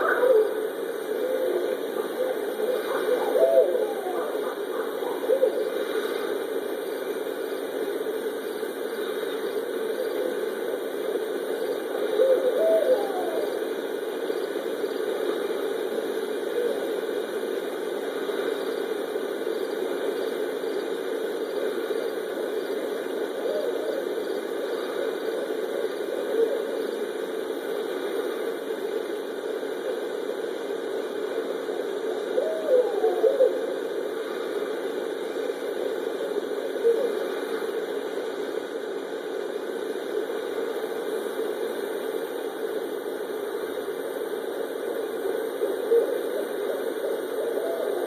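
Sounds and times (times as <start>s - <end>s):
steady rushing noise: 0.0s - 12.5s
owl hooting: 0.0s - 28.9s, 29.6s - 38.0s, 44.8s - 48.0s
steady low hum: 0.0s - 48.0s.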